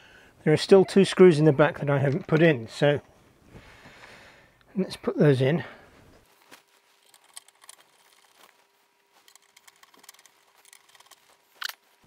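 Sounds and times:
screwdriver clicks and scrapes: 9.2 - 11.8.

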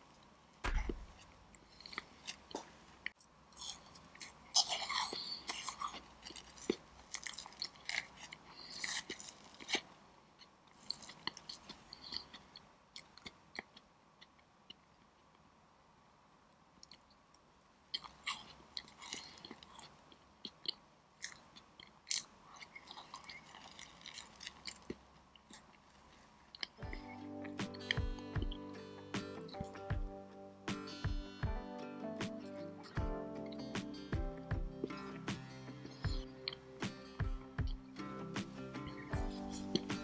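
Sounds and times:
chewing soft cake: 0.1 - 15.4, 16.8 - 28.6, 38.8 - 40.0.

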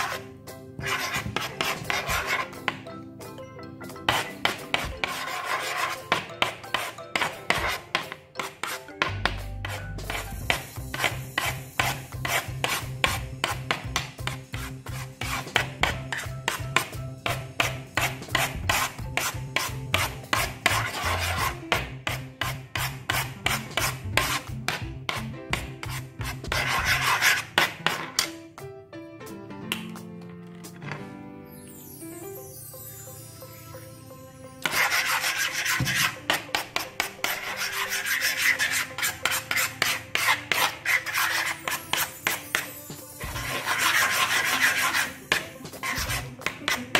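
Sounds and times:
background music with bass: 8.8 - 27.4, 44.9 - 46.9
spoon scraping wet slime: 34.7 - 46.9.

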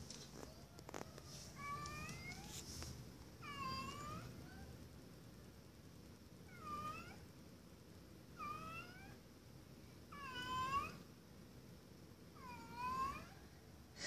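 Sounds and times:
cat meowing: 3.4 - 4.7, 10.2 - 11.0, 12.4 - 13.4.

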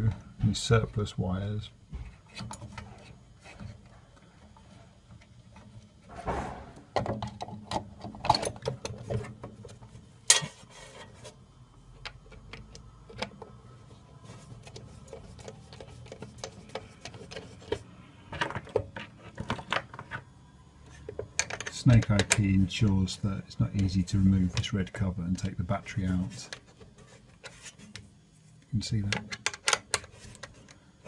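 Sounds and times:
sharp knock: 6.1 - 6.8.

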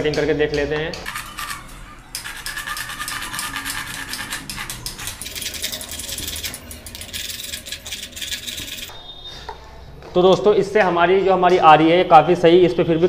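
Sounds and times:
hand saw rasping through sheet: 1.1 - 8.9.

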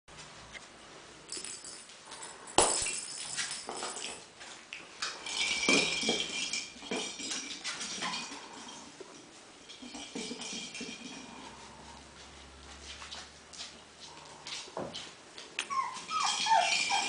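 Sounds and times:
puppies playing with plastic balls: 1.3 - 17.0
high squeak: 15.6 - 17.0.

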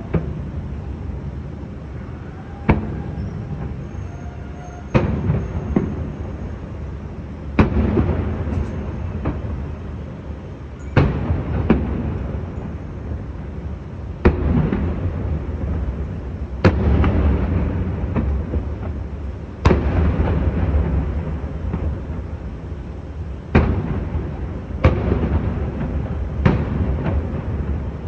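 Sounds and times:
fireworks booming with rumbling tail: 0.0 - 28.0.

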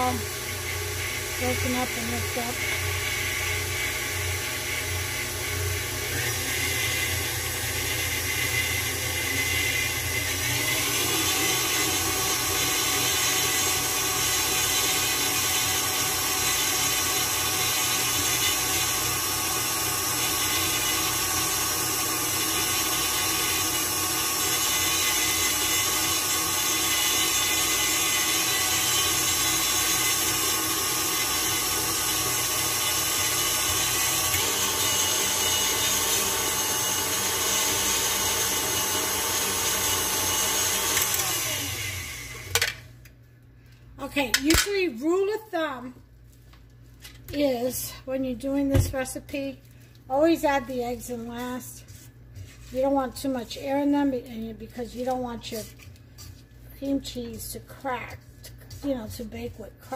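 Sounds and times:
stand mixer running: 0.0 - 42.8.

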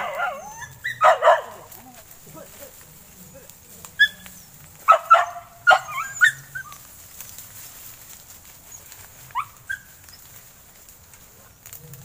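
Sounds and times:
dogs barking and yelping: 0.0 - 2.1, 3.0 - 7.0, 8.6 - 10.5.

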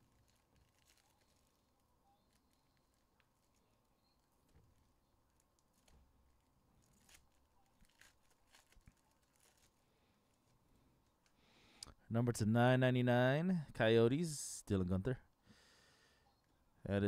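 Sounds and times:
foil wrapper crinkling: 0.0 - 11.4.

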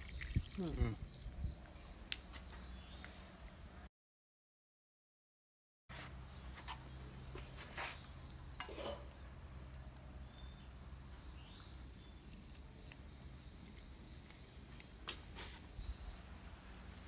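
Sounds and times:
wet clicks of hand mixing mash: 9.1 - 15.7.

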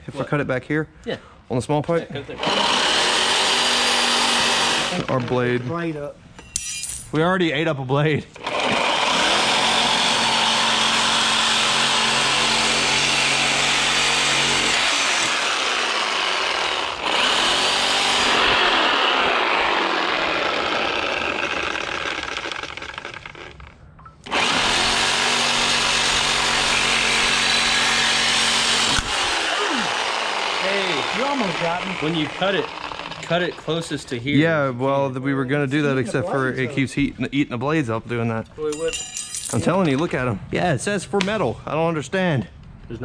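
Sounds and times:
reciprocating saw cutting metal: 2.4 - 5.1, 8.4 - 23.7, 24.3 - 33.9.

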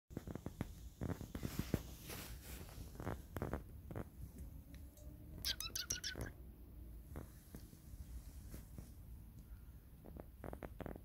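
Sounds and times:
high-pitched chirping: 5.4 - 6.4.

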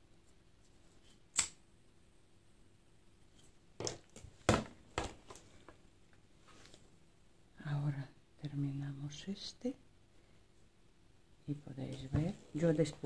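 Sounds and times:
sharp click: 1.3 - 1.6.

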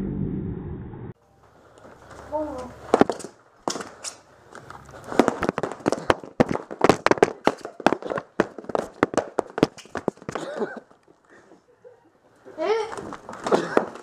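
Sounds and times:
foam pool noodles slapping: 5.0 - 10.5.

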